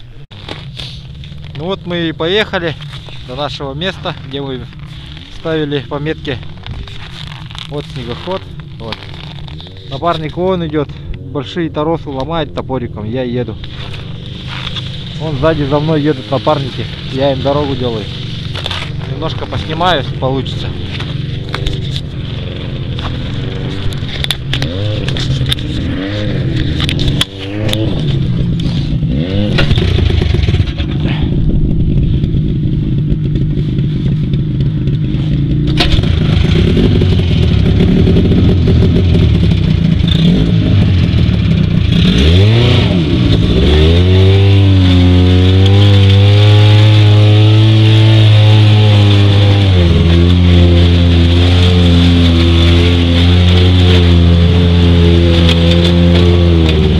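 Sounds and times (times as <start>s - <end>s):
snowmobile engine running under load: 0.0s - 56.9s
knocks and scraping on ice: 0.3s - 11.2s, 13.2s - 32.6s, 45.0s - 56.9s.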